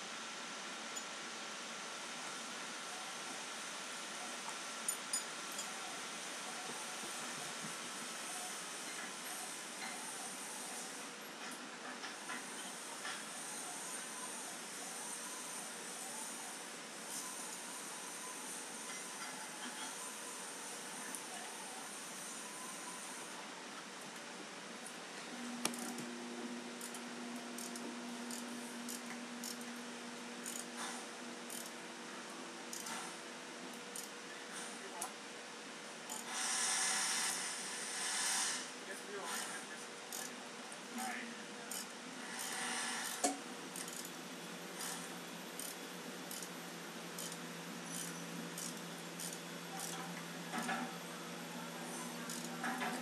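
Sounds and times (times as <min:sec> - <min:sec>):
ratcheting wrench clicking: 0:26.8 - 0:27.0, 0:27.6 - 0:29.7, 0:30.4 - 0:30.6, 0:31.5 - 0:31.7, 0:32.7 - 0:33.0, 0:33.9 - 0:34.1, 0:36.1 - 0:36.3, 0:40.1 - 0:40.3, 0:41.7 - 0:44.2, 0:45.6 - 0:46.5, 0:47.2 - 0:50.0, 0:52.3 - 0:52.5.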